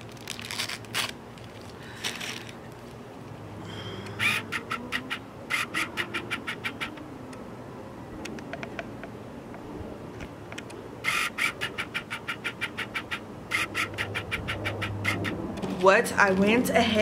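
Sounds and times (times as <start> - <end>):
short sharp animal calls: 4.1 - 7.0, 11.0 - 15.4
scattered clicks: 10.2 - 15.8.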